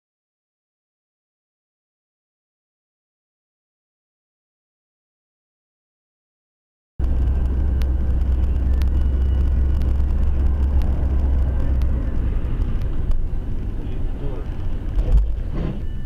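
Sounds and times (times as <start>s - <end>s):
faint clicks: 7.0s - 13.3s
car engine and road rumble: 7.0s - 16.0s.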